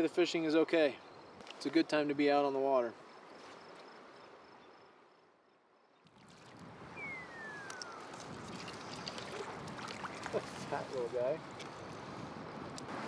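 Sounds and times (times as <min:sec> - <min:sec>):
river current flowing: 0:06.1 - 0:13.0
falling whistle: 0:06.9 - 0:08.2.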